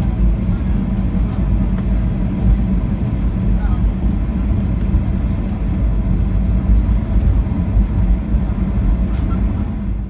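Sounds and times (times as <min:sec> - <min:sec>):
airliner cabin rumble: 0:00.0 - 0:10.0.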